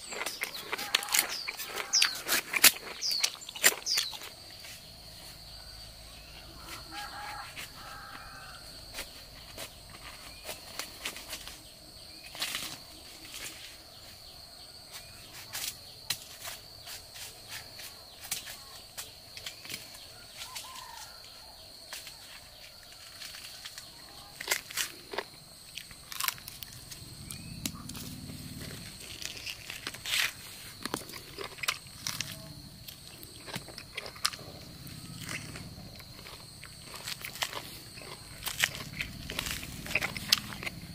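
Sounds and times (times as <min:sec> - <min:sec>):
jackfruit crackling as torn apart: 0:00.0 - 0:04.4, 0:23.2 - 0:40.9
high insect drone: 0:00.0 - 0:40.9.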